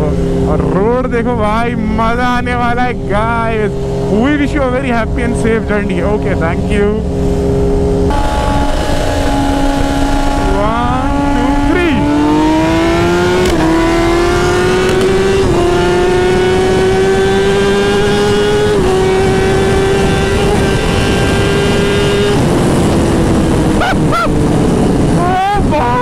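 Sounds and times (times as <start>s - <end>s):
motorcycle engine accelerating: 0.0s - 26.0s
wind rushing: 1.2s - 26.0s.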